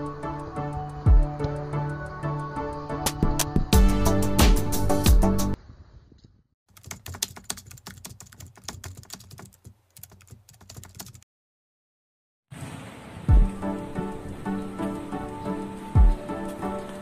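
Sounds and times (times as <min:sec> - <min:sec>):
background music: 0:00.0 - 0:05.6, 0:13.3 - 0:17.0.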